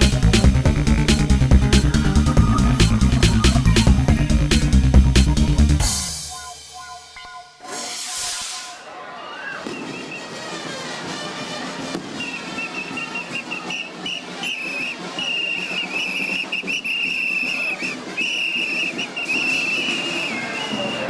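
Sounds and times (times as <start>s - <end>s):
street crowd noise: 0.0s - 21.0s
plastic whistles blown: 7.2s - 10.4s, 12.0s - 21.0s.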